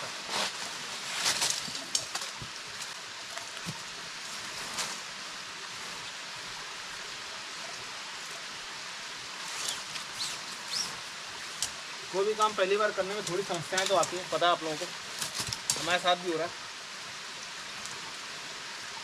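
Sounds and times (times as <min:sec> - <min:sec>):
tent fabric clicks and rustles: 0:00.0 - 0:05.1, 0:09.4 - 0:16.1
stream and waterfall rushing: 0:00.0 - 0:19.0.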